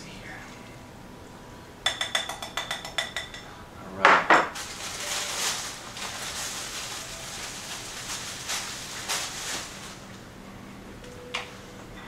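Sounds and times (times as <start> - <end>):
faint room hiss: 0.0 - 12.0
soft rustling: 4.6 - 10.1.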